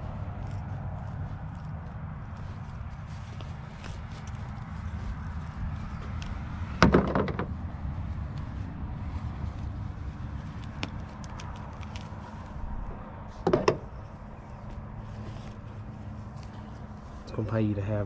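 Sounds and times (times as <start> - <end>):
low rumble: 0.0 - 17.3
metal shears knocking on plastic: 6.8 - 7.5, 13.4 - 13.9.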